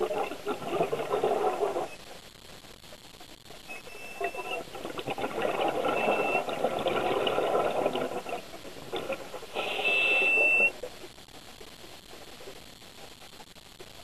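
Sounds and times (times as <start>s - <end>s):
muffled rumbling: 0.0s - 2.2s, 4.2s - 10.6s
high electronic beep: 6.0s - 6.5s, 9.6s - 10.7s.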